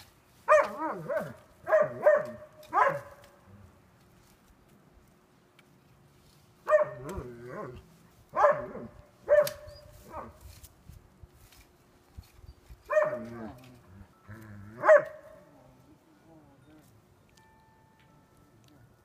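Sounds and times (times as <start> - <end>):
dog barking: 0.5 - 3.2, 6.7 - 7.1, 8.3 - 10.4, 12.9 - 13.3, 14.8 - 15.2.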